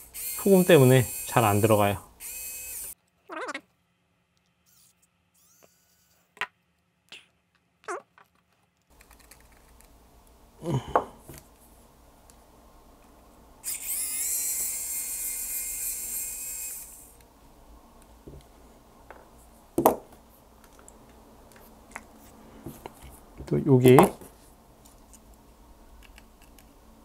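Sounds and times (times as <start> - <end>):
electric screwdriver whining: 0.1 - 3.0, 13.6 - 17.1.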